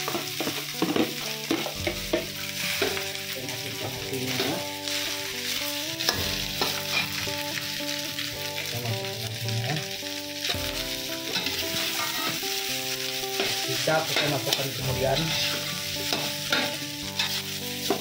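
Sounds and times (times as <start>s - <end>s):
oil sizzling: 0.0s - 18.0s
metal spatula scraping a wok: 0.1s - 3.3s, 4.3s - 7.9s, 10.4s - 18.0s.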